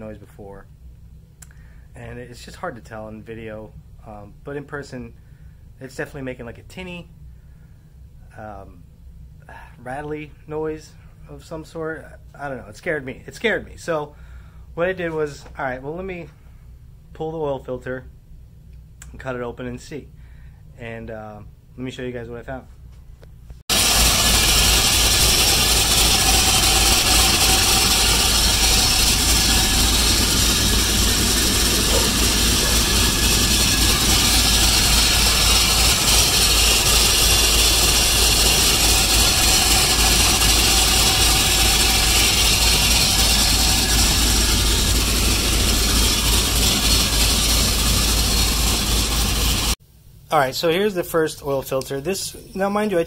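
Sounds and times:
car engine running rattly: 23.7 - 49.8.

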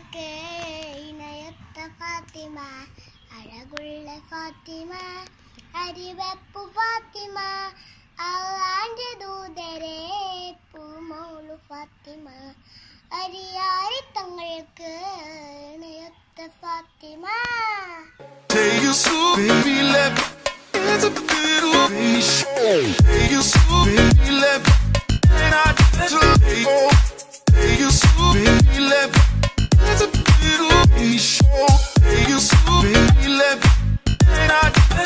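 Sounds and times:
girl singing unaccompanied: 0.0 - 20.2.

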